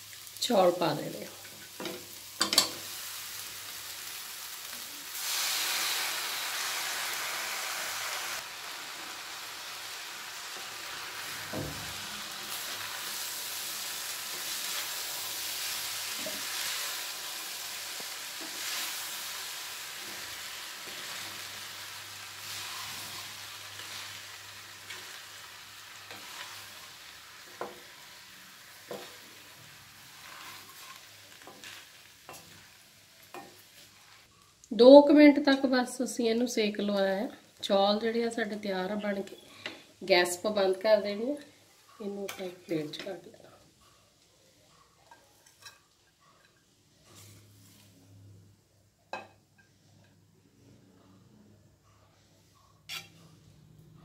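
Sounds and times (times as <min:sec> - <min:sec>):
rice sizzling in a pan: 0:00.0 - 0:34.6, 0:36.4 - 0:47.9, 0:52.9 - 0:53.5.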